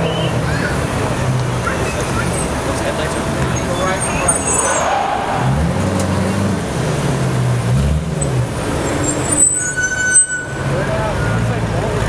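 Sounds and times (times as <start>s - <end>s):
high steady squeal: 9.1s - 11.7s.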